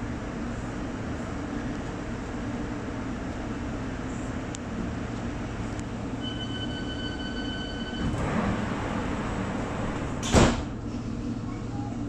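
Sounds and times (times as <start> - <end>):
train rumbling inside carriage: 0.0 - 12.0
steady high tone: 6.2 - 8.2.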